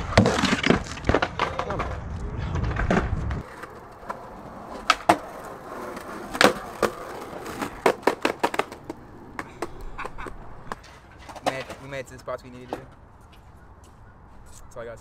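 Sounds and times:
skateboard clacking on concrete: 0.0 - 12.0
skateboard wheels rolling on concrete: 0.0 - 14.4.

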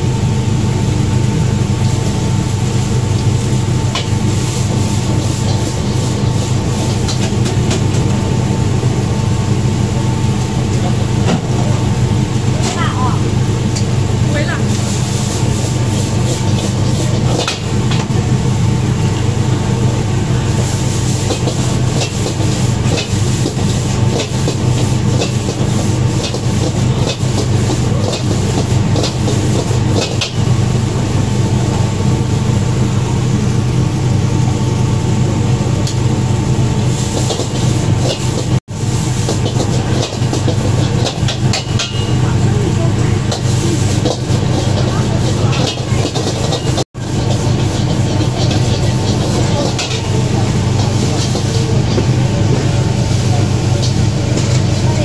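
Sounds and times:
gas burner roaring: 0.0 - 55.0
metal ladle scraping a wok: 43.3 - 51.6.

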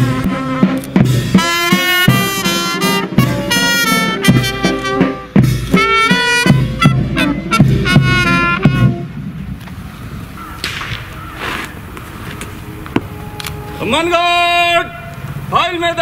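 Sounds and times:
brass band playing: 0.0 - 9.2, 12.1 - 15.5
steady drum beat: 0.0 - 9.2.

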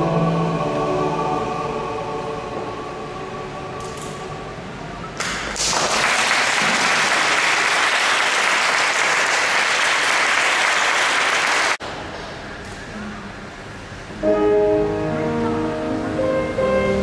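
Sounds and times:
audience applause: 5.2 - 11.8.

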